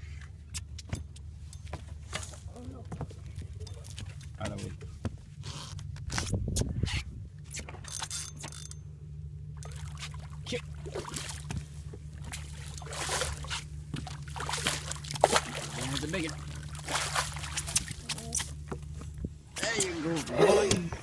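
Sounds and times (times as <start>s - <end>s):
steady low hum: 0.0s - 21.0s
fish splashing in water: 9.6s - 18.6s.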